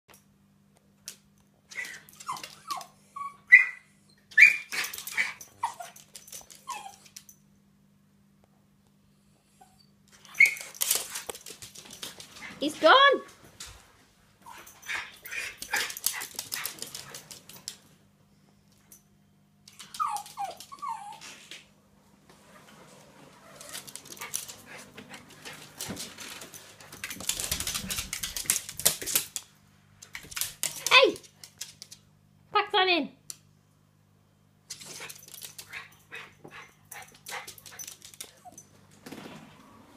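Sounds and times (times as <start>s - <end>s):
dog yelping and whining: 1.7s - 7.3s, 9.6s - 10.9s, 19.7s - 21.4s
dog claws clicking on hard floor: 10.1s - 12.6s, 15.4s - 17.8s, 23.6s - 32.1s, 37.0s - 38.6s.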